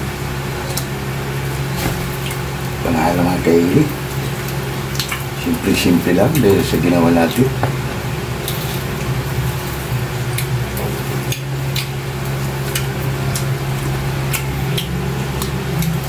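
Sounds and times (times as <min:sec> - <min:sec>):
steady low hum: 0:00.0 - 0:16.0
chewing and lip smacks: 0:04.4 - 0:05.3, 0:10.3 - 0:16.0.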